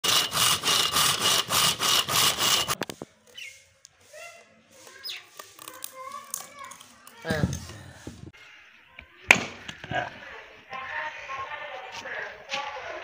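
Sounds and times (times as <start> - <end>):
saw cutting through log: 0.0 - 2.8.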